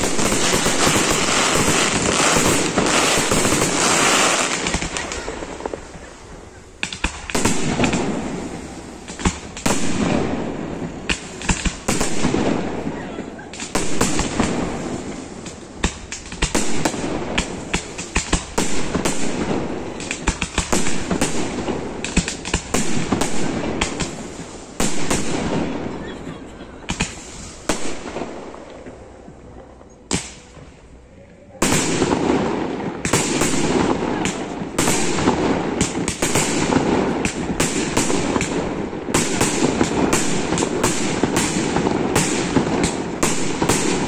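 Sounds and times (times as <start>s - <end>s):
firework shells bursting: 0.0s - 12.7s.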